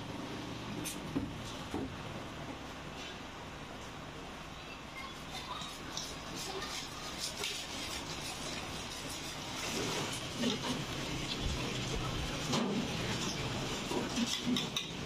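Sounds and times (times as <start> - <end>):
whisk beating batter in pot: 5.4 - 15.0.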